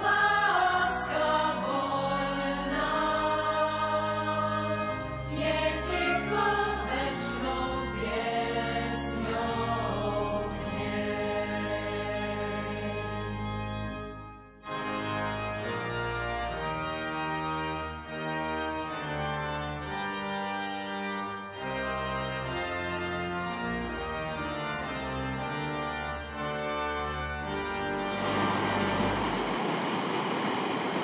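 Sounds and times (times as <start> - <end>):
organ music with held chords: 0.0 - 31.0
mountain stream rushing: 28.2 - 31.0.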